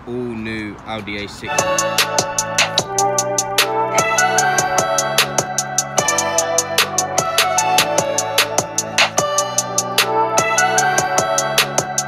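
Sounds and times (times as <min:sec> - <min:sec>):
held chords: 0:01.4 - 0:12.0
drum beat: 0:01.6 - 0:03.3.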